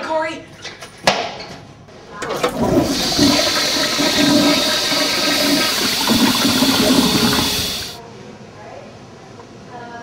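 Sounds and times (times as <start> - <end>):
toilet flush click: 2.2 - 8.0
toilet flushing water rush: 2.2 - 8.0.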